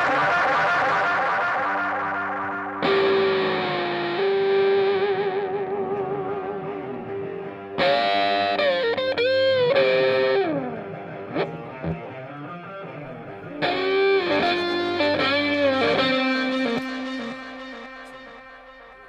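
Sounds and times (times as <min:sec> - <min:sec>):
electric guitar with bent sliding notes: 0:00.0 - 0:19.0.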